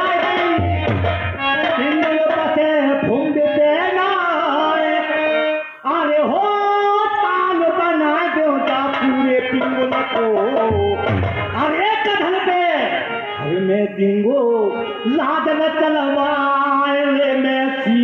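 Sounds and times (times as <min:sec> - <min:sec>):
hand drum beats: 0:00.0 - 0:02.0, 0:09.9 - 0:11.6
harmonium held notes: 0:00.0 - 0:18.0
man singing folk ballad: 0:13.4 - 0:18.0.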